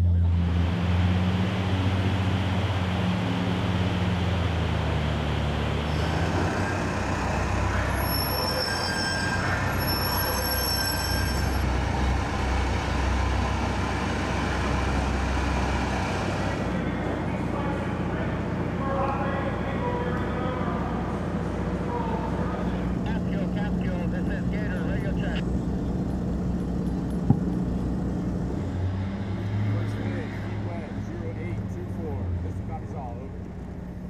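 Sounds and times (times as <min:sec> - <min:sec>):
vehicle engine drone: 0:00.0 - 0:34.0
machinery noise: 0:00.1 - 0:33.1
high-pitched metallic squeals: 0:05.9 - 0:11.8.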